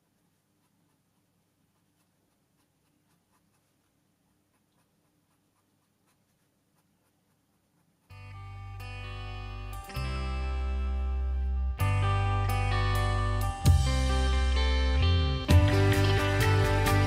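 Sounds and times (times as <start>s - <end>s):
felt-tip pen scratching on paper: 0.0s - 8.2s
guitar music: 8.1s - 17.0s.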